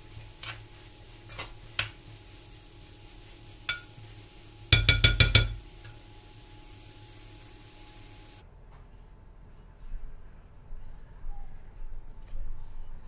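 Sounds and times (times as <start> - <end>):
utensil clinking against a pan: 3.7 - 3.9, 4.7 - 5.6.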